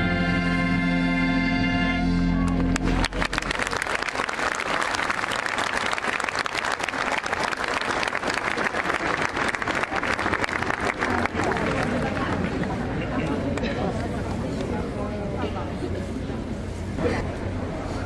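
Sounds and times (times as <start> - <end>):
crowd applauding: 2.4 - 14.7.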